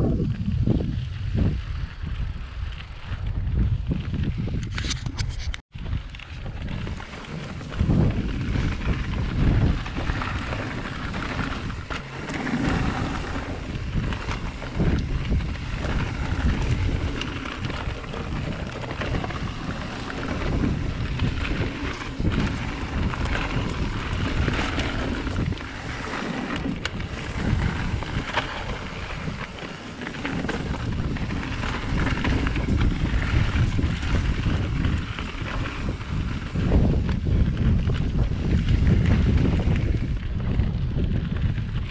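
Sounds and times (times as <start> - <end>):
bike knocking and rattling: 0.0 - 41.9
bike tyres rumbling on dirt: 0.0 - 41.9
wind buffeting microphone: 0.0 - 41.9.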